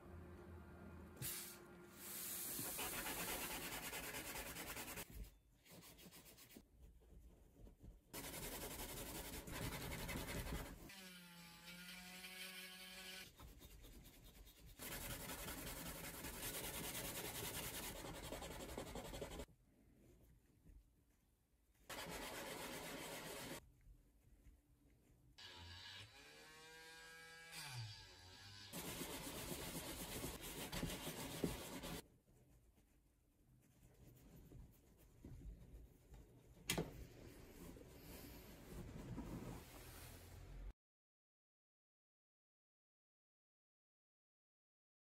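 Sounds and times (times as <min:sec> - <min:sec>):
sandpaper rubbing: 0:01.2 - 0:06.6, 0:08.2 - 0:10.8, 0:13.4 - 0:19.5, 0:21.9 - 0:23.6, 0:28.7 - 0:32.0.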